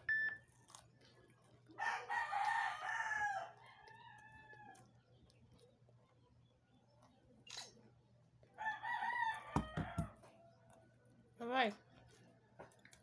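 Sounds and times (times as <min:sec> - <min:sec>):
rooster crowing: 0:01.8 - 0:04.8, 0:08.6 - 0:10.3.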